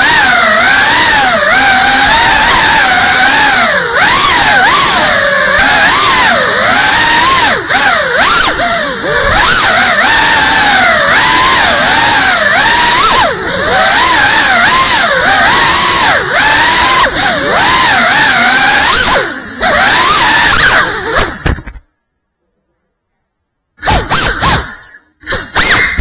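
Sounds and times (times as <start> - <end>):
drone motors and propellers whining: 0.0 - 21.8, 23.8 - 26.0.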